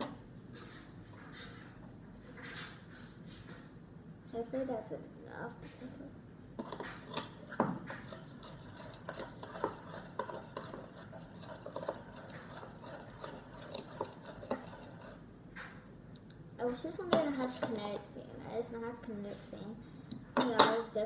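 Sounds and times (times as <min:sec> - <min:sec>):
spoon scraping in a bowl: 0:06.6 - 0:15.2, 0:17.1 - 0:18.0.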